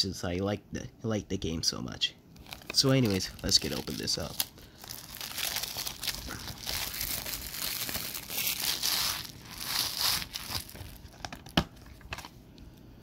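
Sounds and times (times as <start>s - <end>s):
shrink wrap crinkling and tearing: 2.4s - 12.3s.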